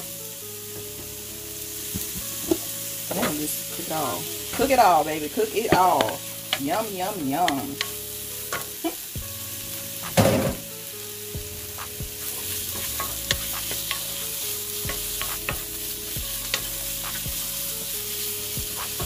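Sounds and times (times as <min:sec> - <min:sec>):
vegetables sizzling in a frying pan: 0:00.0 - 0:19.0
loud bump: 0:10.1 - 0:10.6
wooden spatula scraping a pan: 0:11.6 - 0:19.0.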